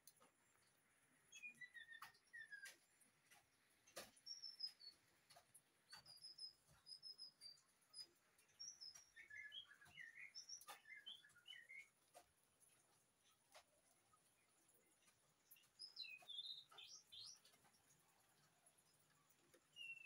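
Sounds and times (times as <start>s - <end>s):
birds calling: 1.3s - 12.3s.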